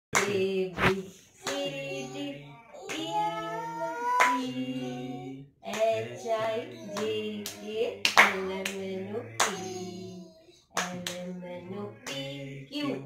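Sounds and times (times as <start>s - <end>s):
woman singing long notes: 1.4s - 10.0s
hand claps: 6.9s - 8.8s, 10.8s - 11.2s.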